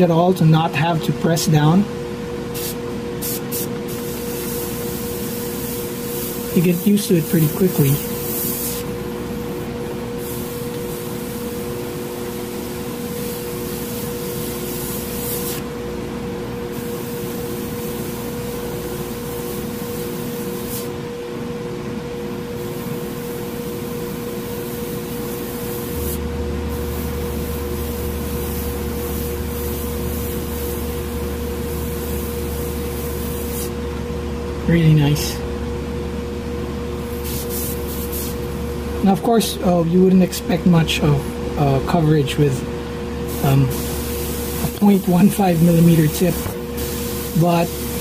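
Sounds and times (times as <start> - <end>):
steady motor hum: 0.0 - 48.0
airbrush hissing: 2.5 - 15.8, 16.7 - 21.0, 22.3 - 33.8, 37.0 - 38.8, 43.2 - 48.0
deeper hum: 23.8 - 48.0.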